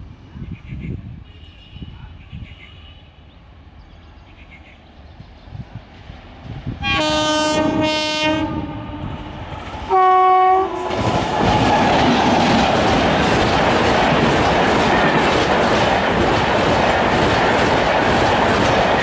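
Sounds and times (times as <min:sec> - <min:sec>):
train passing with loud rumble: 0:03.4 - 0:19.0
train horn blasts: 0:06.8 - 0:11.1.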